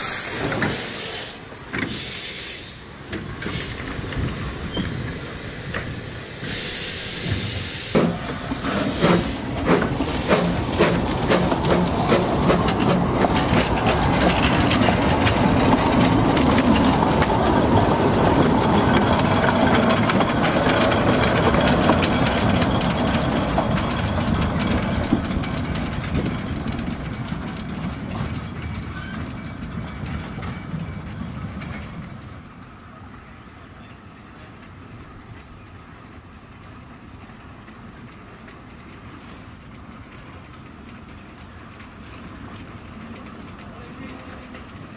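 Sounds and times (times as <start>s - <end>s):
loud hiss of steam: 0.0s - 13.3s
steam train exhaust beats: 0.0s - 44.9s
train wheels clacking on rails: 0.0s - 44.9s.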